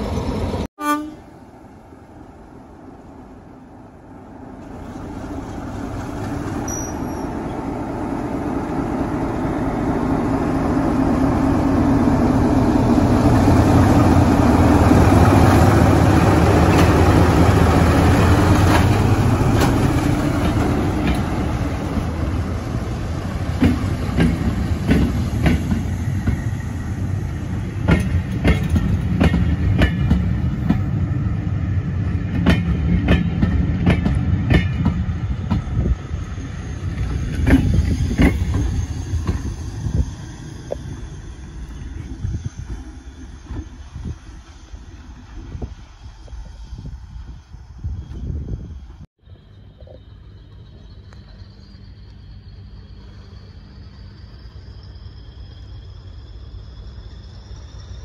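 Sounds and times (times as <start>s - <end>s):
diesel locomotive engine: 0.0s - 58.0s
train wheels clicking over rail joints: 12.8s - 31.0s, 32.0s - 46.5s.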